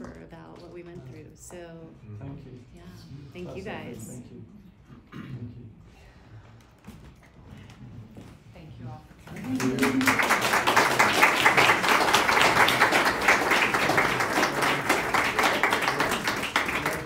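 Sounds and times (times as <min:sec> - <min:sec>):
audience applauding: 0:09.3 - 0:17.0.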